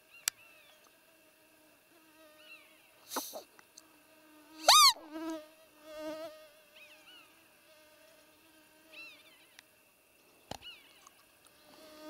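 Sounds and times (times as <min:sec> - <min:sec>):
faint steady hum: 0:00.0 - 0:12.0
deer call peeps: 0:04.6 - 0:05.0.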